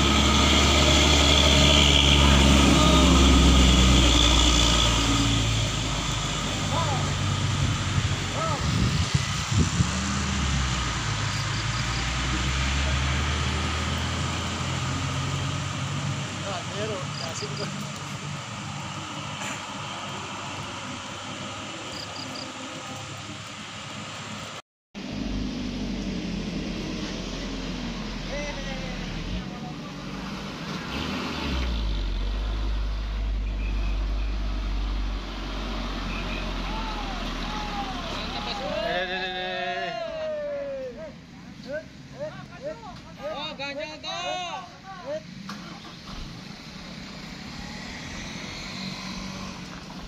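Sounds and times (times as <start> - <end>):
heavy diesel truck engine droning: 0.0 - 39.5.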